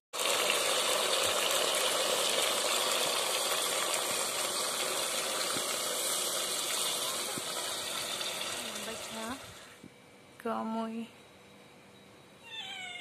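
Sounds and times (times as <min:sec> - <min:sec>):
cooking hiss: 0:00.2 - 0:09.8
water pouring and splashing: 0:00.2 - 0:09.8.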